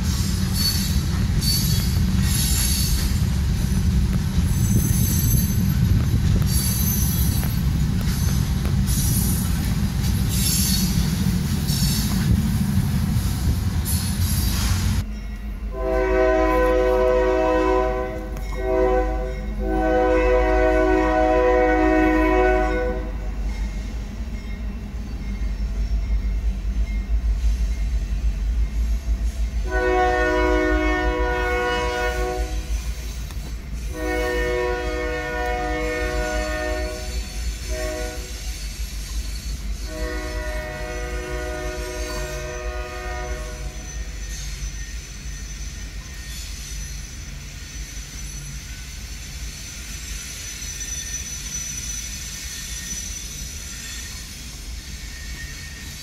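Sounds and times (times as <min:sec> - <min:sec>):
low rumble of train rolling: 0:00.0 - 0:56.0
locomotive air horn blasts: 0:15.7 - 0:23.3, 0:29.6 - 0:32.8, 0:33.9 - 0:38.6, 0:39.8 - 0:44.1.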